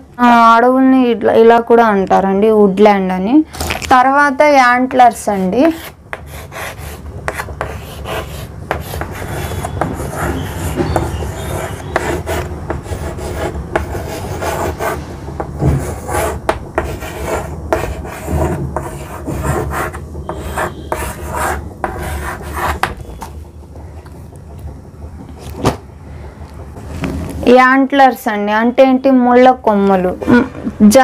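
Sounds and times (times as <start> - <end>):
chalk scratching on blackboard: 5.2 - 22.9
chalk taps: 5.6 - 23.0.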